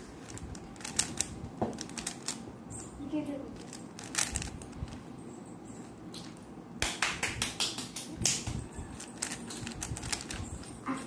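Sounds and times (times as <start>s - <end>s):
puzzle cube clicking: 0.3s - 2.4s, 3.6s - 4.6s, 9.1s - 10.4s.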